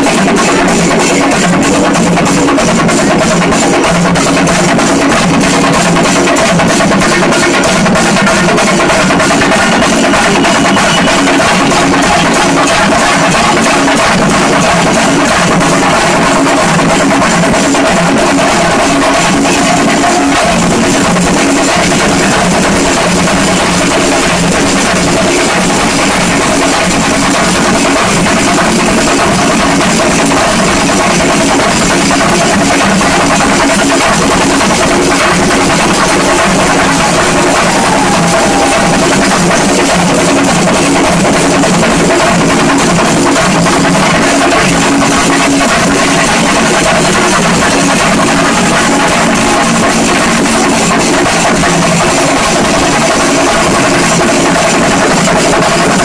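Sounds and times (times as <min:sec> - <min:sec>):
drums beaten with sticks: 0:00.0 - 0:56.0.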